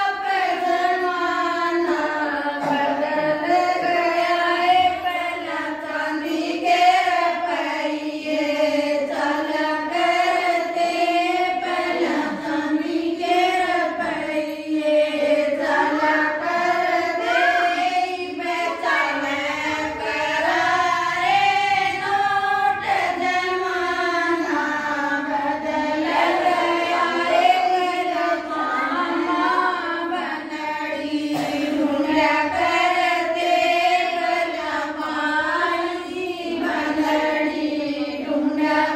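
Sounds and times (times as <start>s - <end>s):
women singing devotional song: 0.0s - 38.9s.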